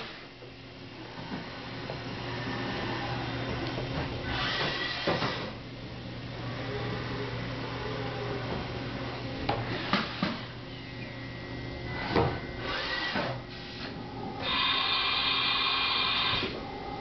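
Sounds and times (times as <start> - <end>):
machining centre humming: 0.0 - 17.0.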